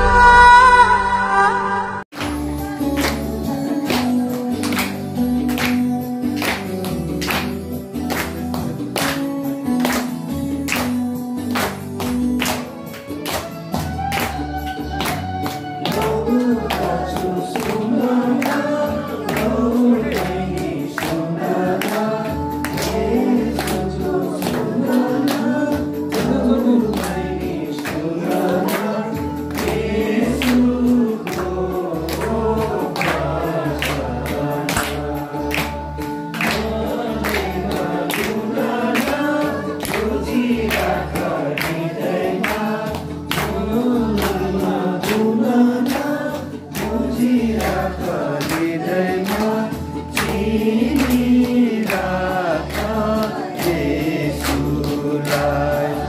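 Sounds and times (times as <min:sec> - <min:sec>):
hands clapping: 0:02.1 - 0:56.0
percussive beat: 0:02.1 - 0:56.0
group of voices singing: 0:15.8 - 0:56.0.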